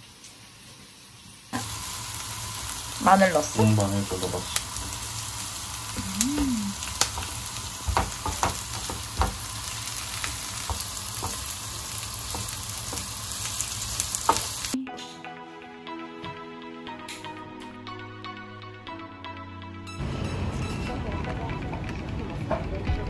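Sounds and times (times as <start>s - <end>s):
food sizzling in a frying pan: 0.0s - 14.8s
soft music: 14.8s - 23.0s.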